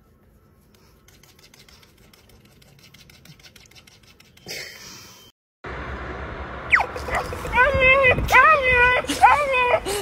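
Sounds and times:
fingers scratching dog's fur: 0.6 - 4.5.

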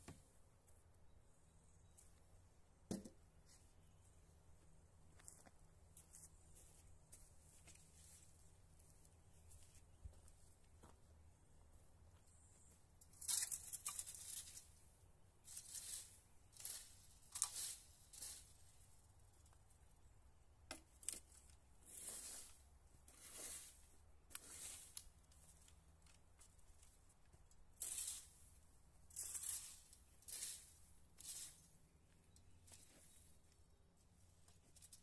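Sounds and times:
rake scraping over wood chips: 13.3 - 14.8, 15.4 - 18.8, 21.8 - 25.8, 27.8 - 31.9.

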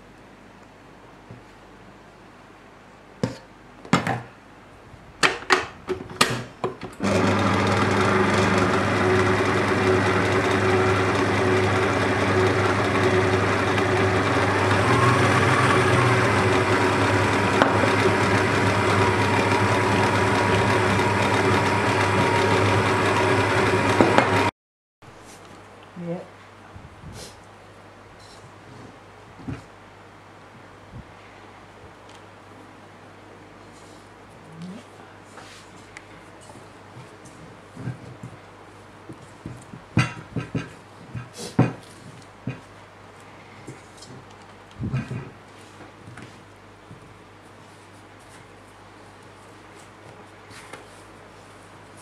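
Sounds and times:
stand mixer motor humming: 7.0 - 24.5.

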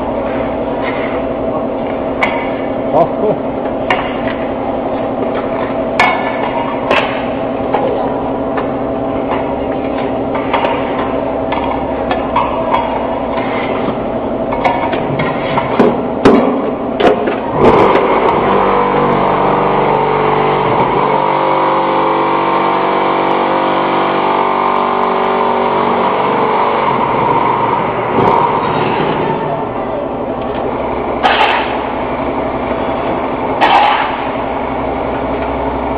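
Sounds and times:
vibrating hum of vibration motor: 0.0 - 35.9
machine clanks and knocks: 3.6 - 18.4.

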